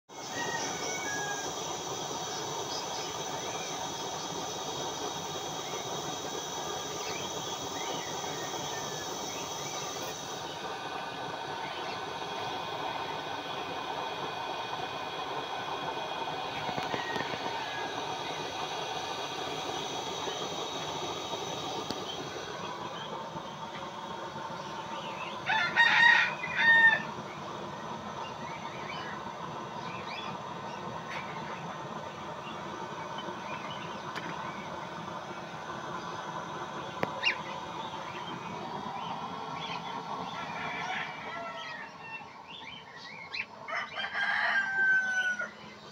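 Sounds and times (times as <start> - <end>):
oil burner stove hissing: 0.1 - 45.9
rooster crowing: 0.2 - 1.8, 16.4 - 18.6, 25.4 - 27.2, 40.2 - 42.3, 43.6 - 45.8.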